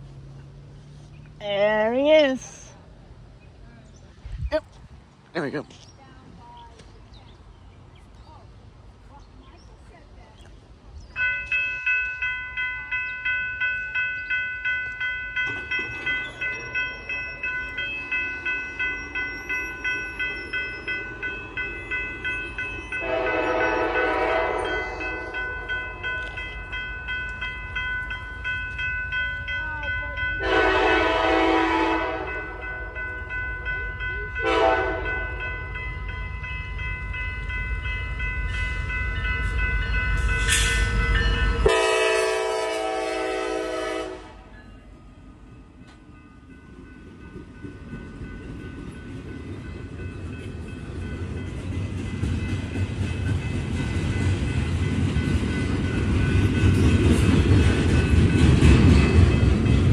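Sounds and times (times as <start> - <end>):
low rumble of train: 0.0 - 59.9
bell ringing: 11.2 - 31.0, 32.2 - 41.8
locomotive air horn blasts: 23.0 - 25.2, 30.4 - 32.6, 34.4 - 35.2, 41.6 - 44.5.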